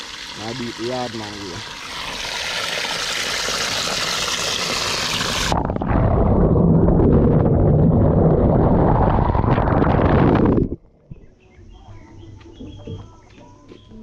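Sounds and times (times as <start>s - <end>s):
water gushing into plastic bucket: 0.0s - 10.8s
muffled underwater rumble: 5.3s - 11.4s.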